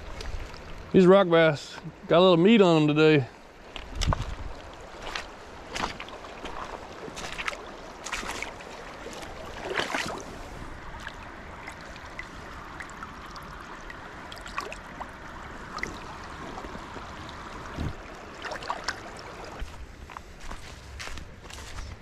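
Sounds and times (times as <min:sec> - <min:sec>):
creek water running over rocks: 0:00.0 - 0:21.8
short splashing and rustling: 0:03.8 - 0:12.7.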